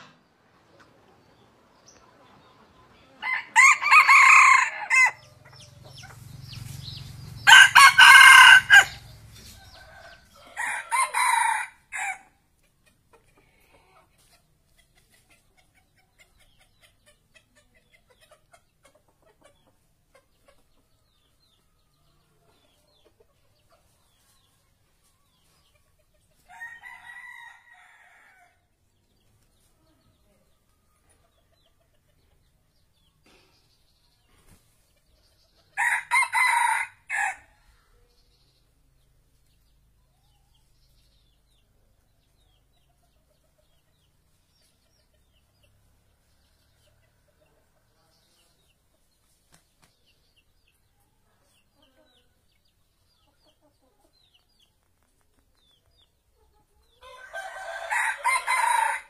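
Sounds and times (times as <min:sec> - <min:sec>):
rooster crowing: 0:03.2 - 0:05.2, 0:07.4 - 0:09.1, 0:09.7 - 0:12.2, 0:35.8 - 0:37.5, 0:57.0 - 0:59.0.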